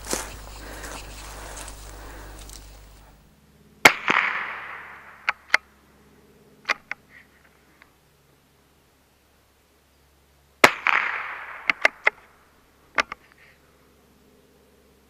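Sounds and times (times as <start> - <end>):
rifle shot echoing: 3.8 - 5.6, 10.6 - 12.2.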